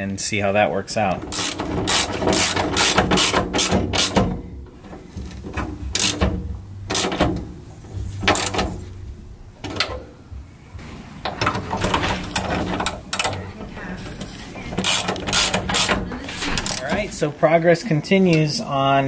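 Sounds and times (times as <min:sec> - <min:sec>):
ratchet wrench clicking: 0:01.3 - 0:04.2, 0:06.0 - 0:06.2, 0:14.8 - 0:16.0.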